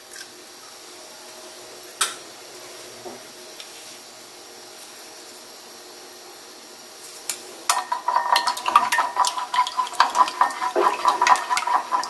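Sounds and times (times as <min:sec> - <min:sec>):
chopsticks beating egg in glass bowl: 0:07.7 - 0:12.0.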